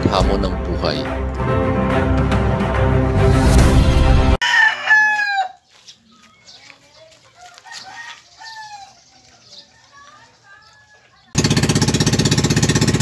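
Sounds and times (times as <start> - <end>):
music: 0.0 - 4.4
rooster crowing: 4.4 - 5.6, 7.4 - 9.0, 9.6 - 11.3
bird calls and chirps: 5.6 - 11.4.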